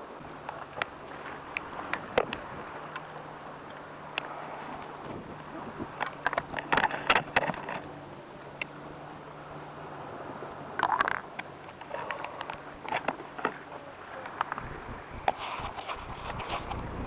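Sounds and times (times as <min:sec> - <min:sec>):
camera handling scrapes and clicks: 0:15.3 - 0:16.8.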